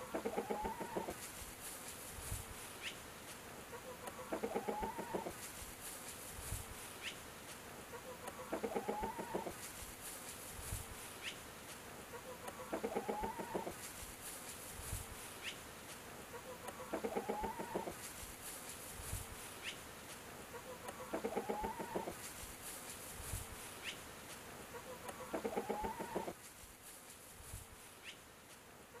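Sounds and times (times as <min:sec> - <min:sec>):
chicken buzzy call: 0:00.0 - 0:01.2, 0:03.7 - 0:05.4, 0:07.9 - 0:09.6, 0:12.1 - 0:13.8, 0:16.3 - 0:18.0, 0:20.5 - 0:22.2, 0:24.7 - 0:26.4
small bird chirping: 0:02.7 - 0:03.0, 0:08.0 - 0:09.6, 0:12.2 - 0:13.9, 0:16.4 - 0:18.1, 0:19.5 - 0:19.9, 0:23.7 - 0:24.1, 0:24.8 - 0:26.4, 0:27.9 - 0:28.3.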